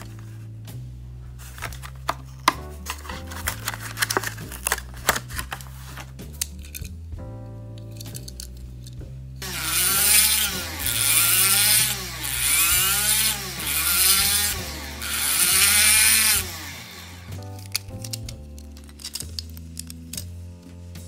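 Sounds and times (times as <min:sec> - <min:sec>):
rotary tool whining: 0:09.4 - 0:17.4.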